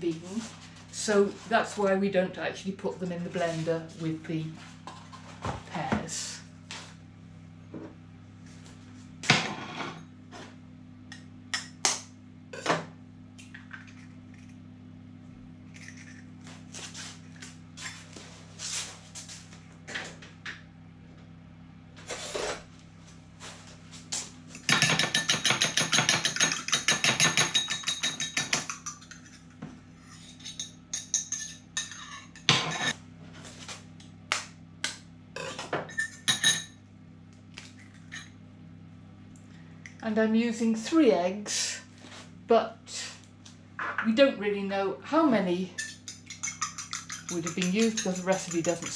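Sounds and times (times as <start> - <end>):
fork beating eggs: 24.6 - 29.5, 45.8 - 48.9
eggs cracked against bowl: 45.8 - 48.9.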